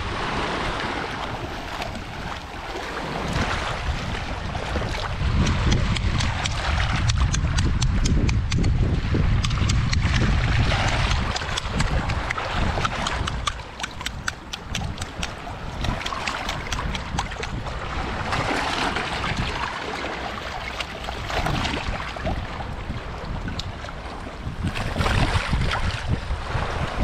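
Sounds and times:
seawater lapping: 0.0s - 27.0s
wind on microphone: 0.0s - 27.0s
shell cracking clicks and crunches: 10.9s - 17.6s.

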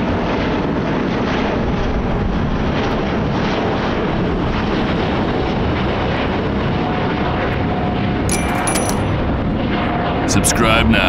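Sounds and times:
high clicking with ringing tone: 8.3s - 9.2s.

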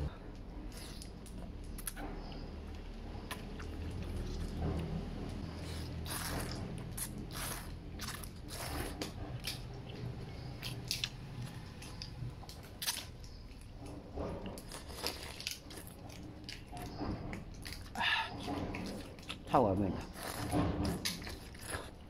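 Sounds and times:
chewing: 0.3s - 22.0s
noodles being slurped: 3.2s - 12.2s, 14.6s - 22.0s.

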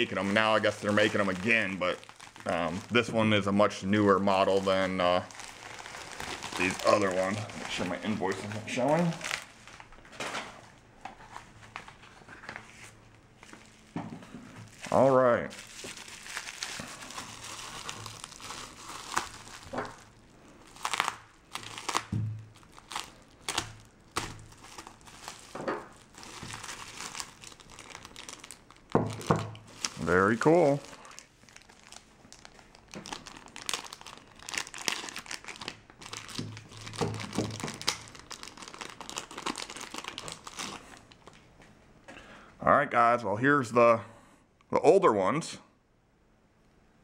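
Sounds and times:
bubble wrap crinkling: 0.0s - 41.6s
bubble wrap clicks: 31.2s - 41.4s.

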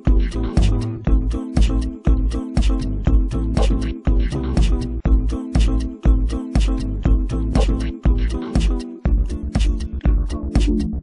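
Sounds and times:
music with heavy bass beat: 0.0s - 11.0s.

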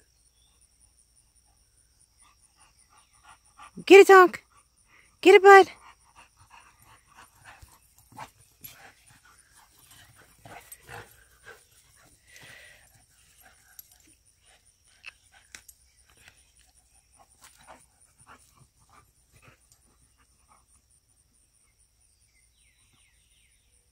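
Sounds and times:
dogs breathing: 4.4s - 21.1s.

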